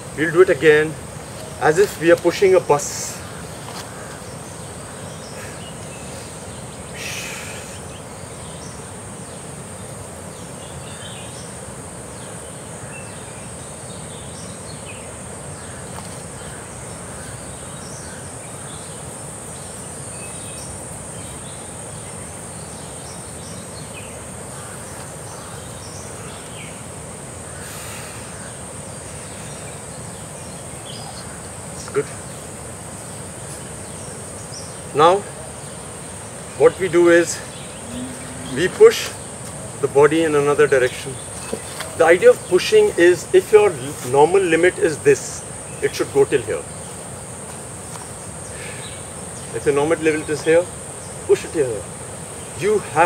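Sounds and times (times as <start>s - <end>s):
high-pitched insect drone: 0.0s - 53.0s
short chirps: 37.8s - 39.2s.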